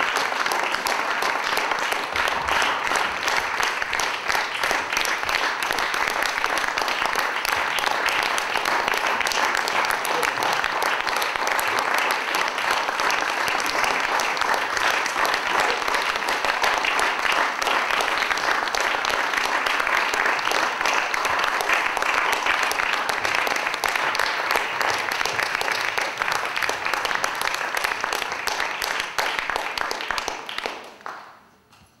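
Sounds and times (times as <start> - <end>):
audience applauding: 0.0 - 31.4.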